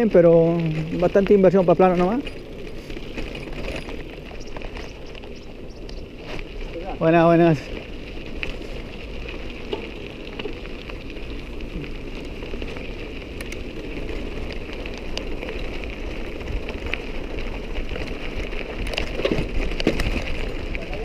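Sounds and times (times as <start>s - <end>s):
bicycle tyres on gravel: 0.0s - 21.0s
small ticks: 4.2s - 6.4s, 7.8s - 20.1s.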